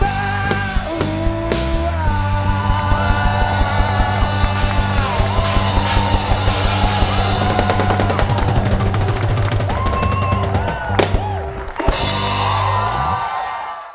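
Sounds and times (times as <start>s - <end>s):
person singing: 0.0s - 8.5s
drum kit beat: 0.0s - 13.1s
rock band playing: 0.0s - 13.8s.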